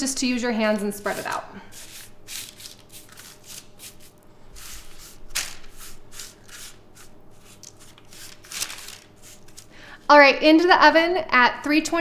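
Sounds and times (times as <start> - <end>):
hands rustling flakes on parchment: 0.8 - 9.7.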